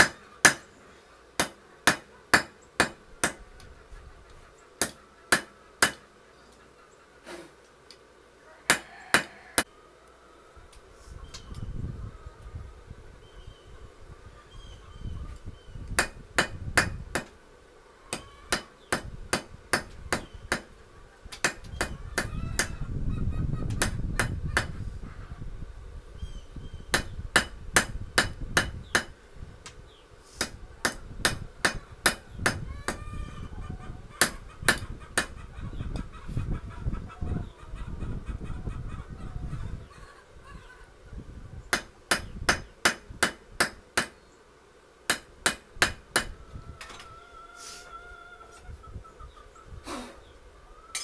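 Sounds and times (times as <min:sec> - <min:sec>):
hammer striking hot steel on anvil: 0:00.0 - 0:00.6, 0:01.4 - 0:03.4, 0:04.8 - 0:06.0, 0:16.0 - 0:17.3, 0:18.1 - 0:20.7, 0:26.9 - 0:29.1, 0:30.4 - 0:32.6, 0:41.7 - 0:44.2, 0:45.1 - 0:46.3
poultry calling faintly: 0:03.4 - 0:07.7, 0:08.3 - 0:15.8, 0:17.8 - 0:18.8, 0:24.4 - 0:25.6, 0:32.6 - 0:41.2, 0:46.4 - 0:51.0.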